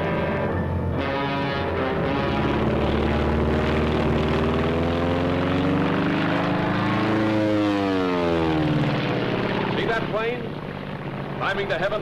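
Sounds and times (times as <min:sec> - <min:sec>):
propeller airplane engine droning: 0:00.0 - 0:12.0.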